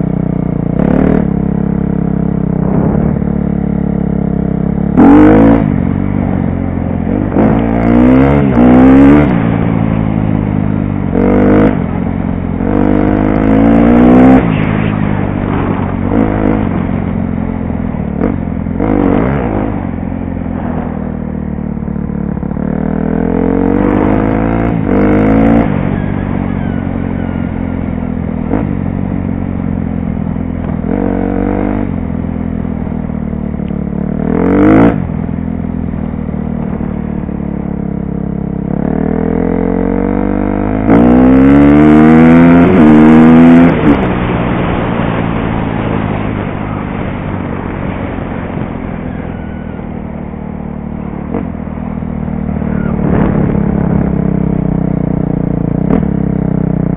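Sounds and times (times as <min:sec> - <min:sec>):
motocross bike engine revving: 0:00.7 - 0:01.9, 0:04.2 - 0:06.4, 0:07.0 - 0:10.1, 0:11.0 - 0:12.0, 0:12.6 - 0:17.4, 0:22.4 - 0:28.9, 0:34.0 - 0:35.2, 0:38.6 - 0:56.2.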